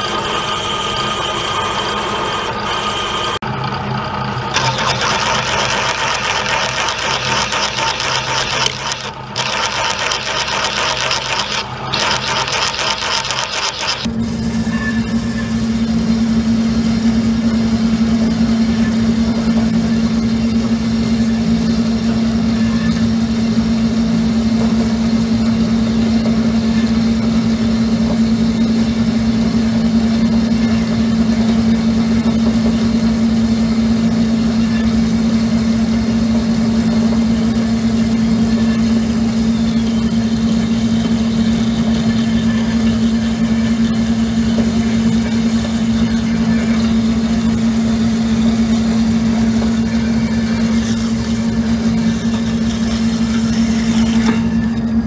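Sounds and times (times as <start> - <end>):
bandsaw cutting metal: 4.5 - 14.1, 48.8 - 55.0.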